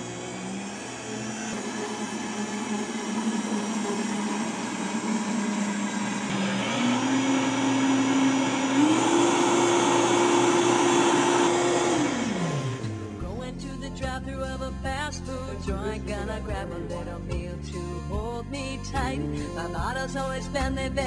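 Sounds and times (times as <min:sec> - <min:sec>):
blender motor running: 0:00.0 - 0:13.2.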